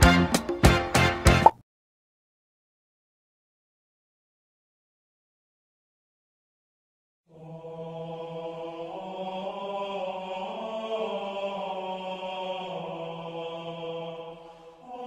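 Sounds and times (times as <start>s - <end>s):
choir-like droning chord: 7.3s - 15.0s.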